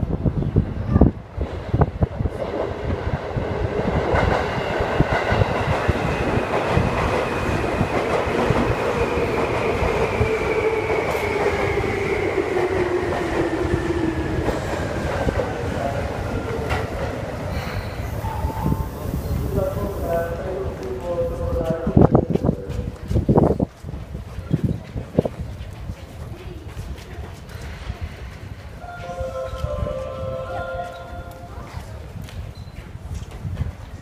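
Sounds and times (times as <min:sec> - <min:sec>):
train wheels rumbling on rails: 0:00.0 - 0:34.0.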